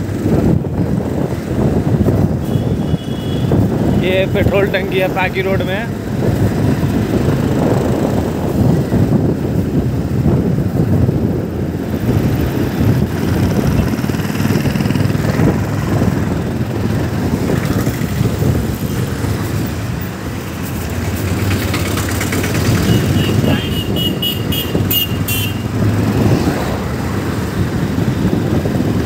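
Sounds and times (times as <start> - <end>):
passing traffic: 0.0 - 29.0
wind rumble on microphone: 0.0 - 29.0
motorcycle engine running: 5.9 - 26.0.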